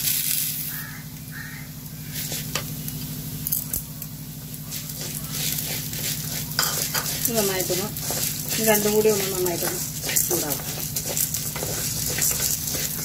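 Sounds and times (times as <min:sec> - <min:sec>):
steady low hum: 0:00.2 - 0:13.0
spatula scraping lentils in pan: 0:02.0 - 0:02.7, 0:04.4 - 0:13.0.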